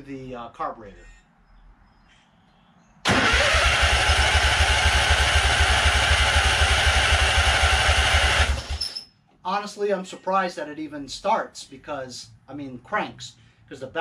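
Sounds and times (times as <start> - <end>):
engine cranking by starter: 3.0 - 9.0.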